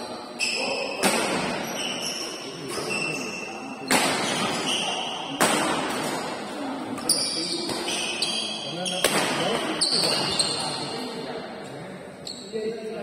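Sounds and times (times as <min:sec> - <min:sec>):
shoes squeaking on court floor: 0:00.0 - 0:05.4, 0:06.9 - 0:11.1.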